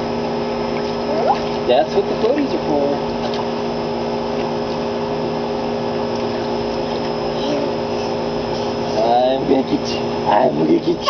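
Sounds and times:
pump motor humming: 0.0 - 11.0.

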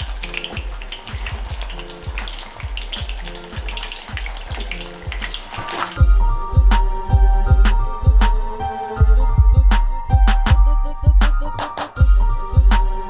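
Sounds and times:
food sizzling in hot oil: 0.0 - 6.0
background music with beat: 0.0 - 13.0.

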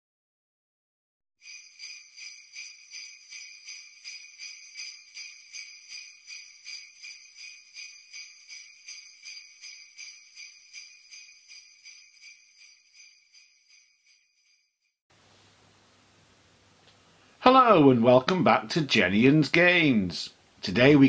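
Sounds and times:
jingle bells shaken: 1.4 - 15.0.

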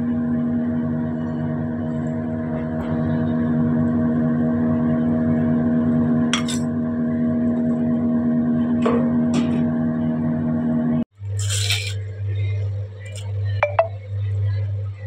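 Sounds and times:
droning hum: 0.0 - 15.0.

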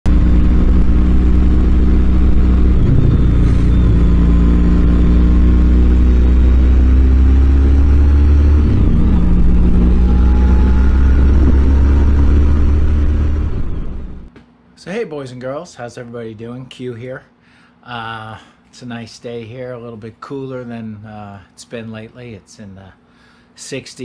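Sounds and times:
motorcycle engine cruising: 0.1 - 14.3
wind and road noise: 0.1 - 14.3.

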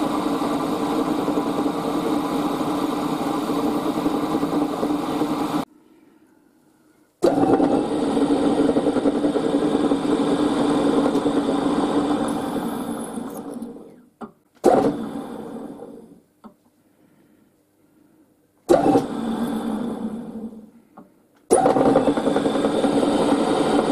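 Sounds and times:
milling machine spindle motor: 0.0 - 5.6, 7.2 - 13.9, 14.6 - 16.0, 18.7 - 20.6, 21.5 - 23.9.

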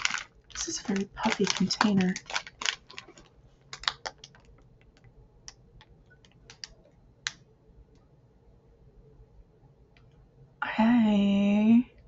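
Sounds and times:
plastic packaging crinkling: 0.0 - 5.1.

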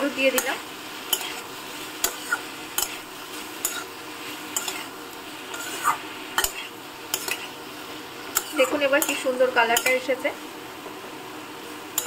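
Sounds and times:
vegetables sizzling in a pan: 0.0 - 12.0
spatula scraping a pan: 0.3 - 7.6, 8.3 - 10.1.

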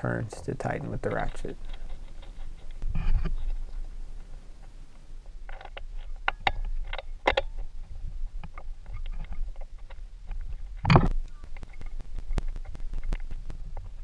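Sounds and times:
metal parts clicking and tapping: 0.9 - 3.5.

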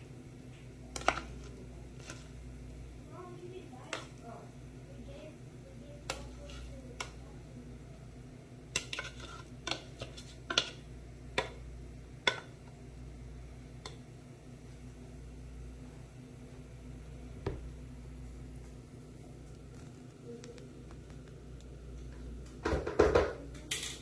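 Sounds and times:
low steady hum: 0.0 - 24.0
rice paddle knocking on pot: 11.4 - 11.6.

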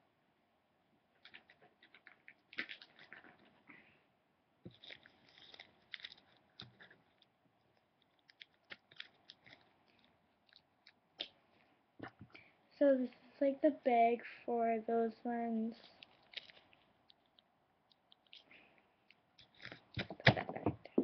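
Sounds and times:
plastic bag crinkling: 1.2 - 3.6, 4.7 - 7.3, 8.0 - 10.7, 15.8 - 20.2.

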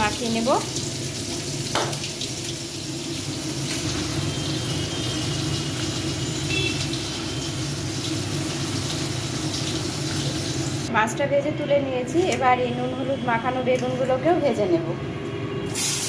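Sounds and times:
fish sizzling in hot oil: 0.0 - 10.9, 15.7 - 16.0.

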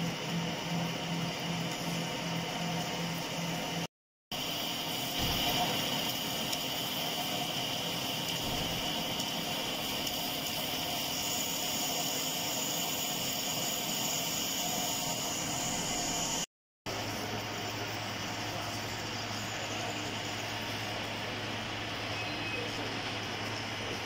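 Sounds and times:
metal lathe cutting with whine: 4.4 - 16.5, 17.1 - 23.4.

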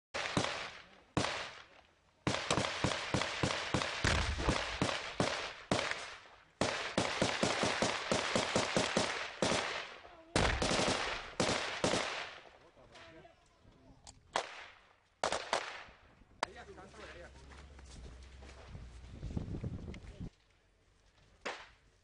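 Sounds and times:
gunshots with echo: 0.2 - 1.6, 2.3 - 12.4.

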